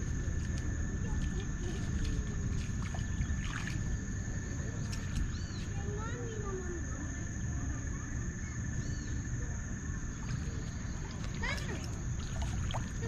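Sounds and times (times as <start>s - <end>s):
wind rumble on microphone: 0.0s - 6.1s.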